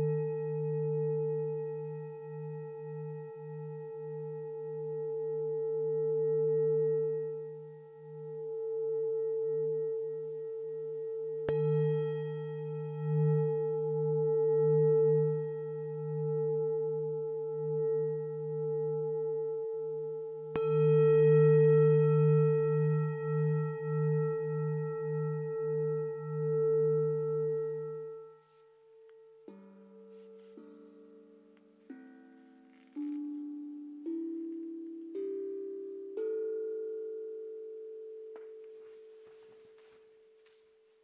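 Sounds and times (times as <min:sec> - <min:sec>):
singing bowl struck: 0:00.0 - 0:19.0
singing bowls ringing: 0:00.0 - 0:41.0.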